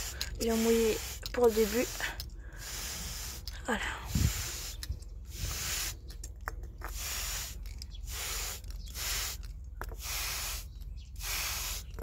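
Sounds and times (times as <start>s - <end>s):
plant mister spraying hissing puffs: 0.0s - 6.2s, 6.9s - 12.0s.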